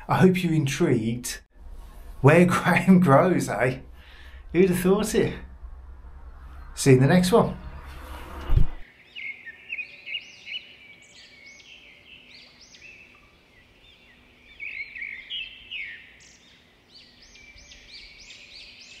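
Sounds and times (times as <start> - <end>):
songbirds chirping: 0.0 - 8.2, 8.8 - 19.0.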